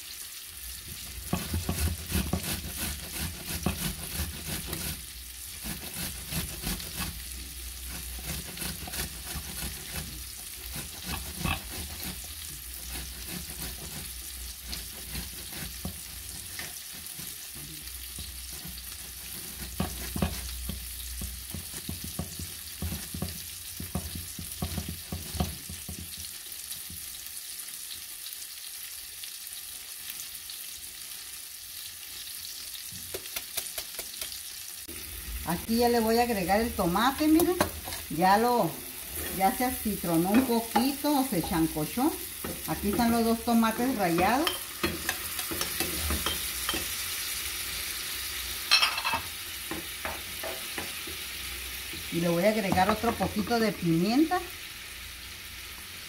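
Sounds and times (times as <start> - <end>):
tomatoes grated on metal grater: 1.2 - 26.1, 36.2 - 46.9.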